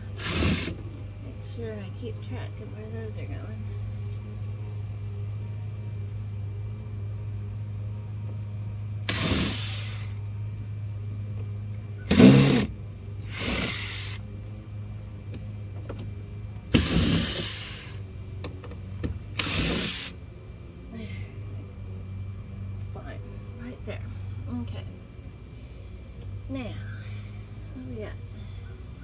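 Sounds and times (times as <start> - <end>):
cordless drill backing out screws: 0.2 - 0.8, 9.1 - 10.0, 12.1 - 12.7, 13.3 - 14.2, 16.8 - 17.9, 19.4 - 20.1.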